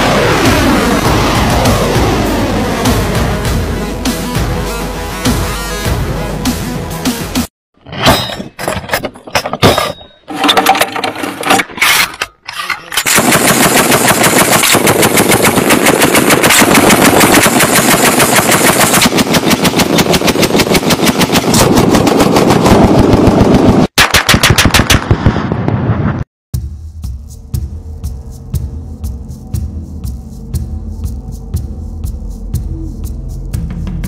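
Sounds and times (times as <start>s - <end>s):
heavy machine gun bursts: 10.4s - 22.6s
loud clacks and bangs: 13.0s - 25.2s.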